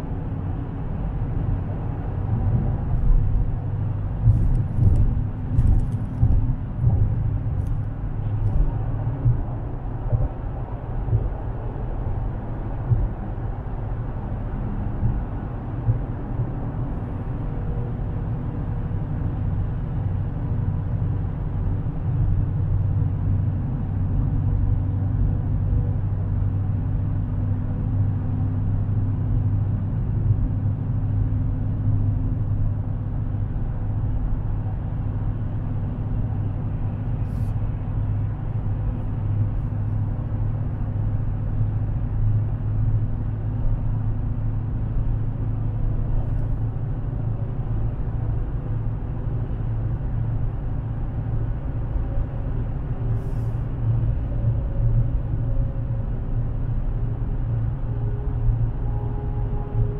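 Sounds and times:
tyre and road noise: 0.0 - 21.1
car engine droning inside cabin: 0.0 - 59.9.

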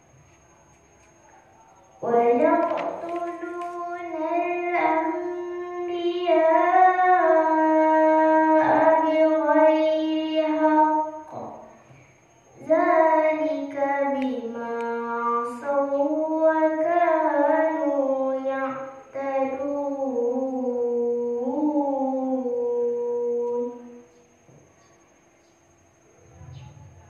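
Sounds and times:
girl chanting into microphone: 2.0 - 11.8, 12.6 - 24.0.

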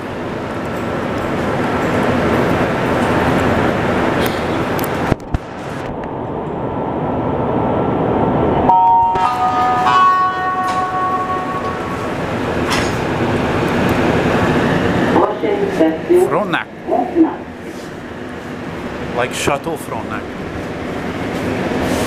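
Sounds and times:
train car rumble: 0.0 - 22.0
train doors closing thump: 9.1 - 13.2.

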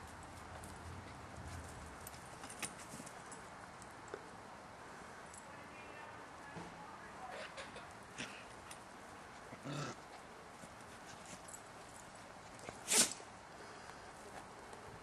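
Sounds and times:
dog sneezing: 12.8 - 13.2.

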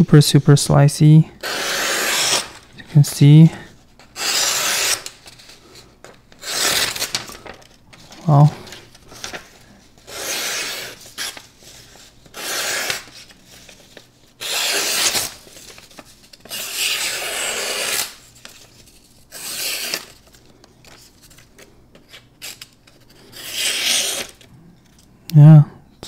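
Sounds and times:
knife slicing paper: 1.4 - 2.6, 4.2 - 5.4, 6.4 - 7.5, 10.1 - 13.8, 14.4 - 18.6, 19.3 - 20.2, 22.4 - 24.4.

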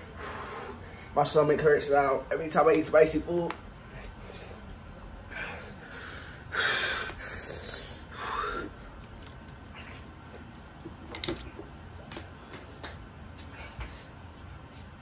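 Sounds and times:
man breathing hard and snorting: 0.0 - 1.2, 5.3 - 8.8.

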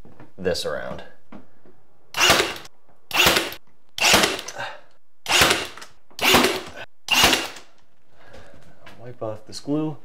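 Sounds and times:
cordless nailer firing nails: 2.2 - 4.6, 5.2 - 7.8.

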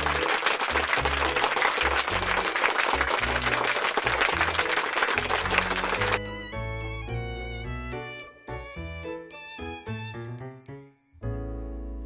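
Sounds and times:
crowd applause: 0.0 - 6.2.

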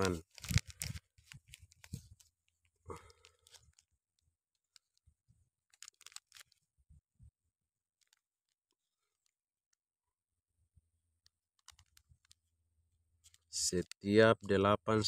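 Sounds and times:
faint crackles: 0.0 - 7.1, 7.9 - 9.4, 11.2 - 12.6.

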